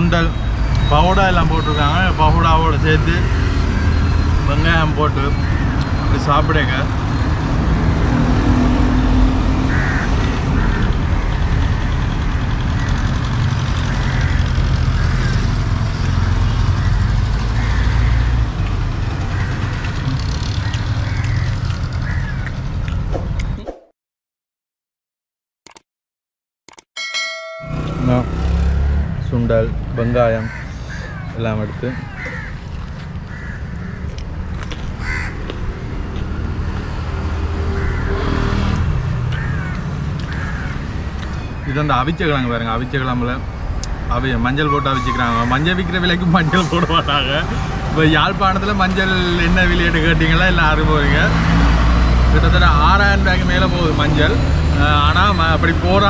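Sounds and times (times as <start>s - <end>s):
road traffic rumble: 0.0s - 23.6s, 27.5s - 56.0s
crows cawing: 5.3s - 5.9s, 9.6s - 11.4s, 12.7s - 15.7s, 16.8s - 18.4s, 19.2s - 22.6s, 30.3s - 34.3s, 35.0s - 35.6s, 37.5s - 38.5s, 39.3s - 41.9s.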